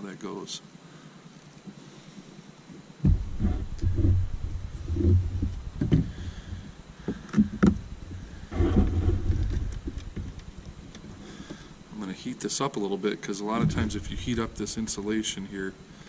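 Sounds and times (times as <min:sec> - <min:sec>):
hands rubbing on wiring: 0:08.1 - 0:11.2.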